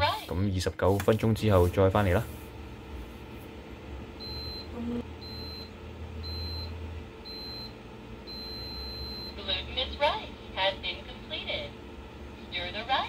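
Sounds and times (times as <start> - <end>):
low steady hum: 0.0 - 13.0
rice cooker beeping: 4.2 - 9.4.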